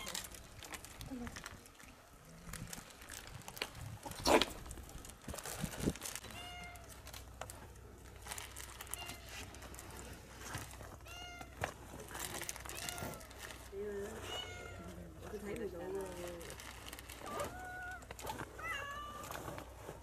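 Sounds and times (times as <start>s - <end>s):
food packaging rustling: 0.0s - 20.0s.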